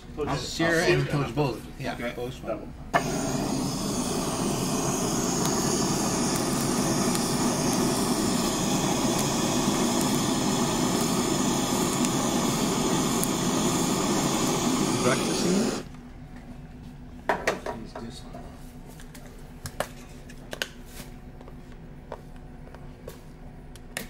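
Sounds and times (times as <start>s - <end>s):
blowtorch flame hissing: 2.9s - 15.9s.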